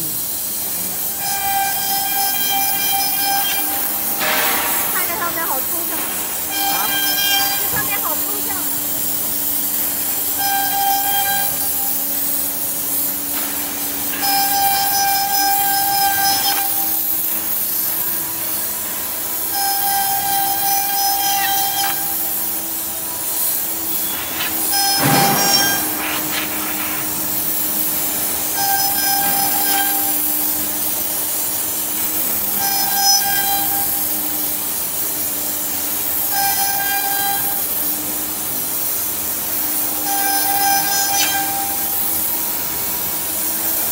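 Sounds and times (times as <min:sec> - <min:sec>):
air nozzle hissing: 0:00.0 - 0:43.9
whining tone: 0:04.9 - 0:30.3
router spindle cutting wood: 0:05.0 - 0:31.0.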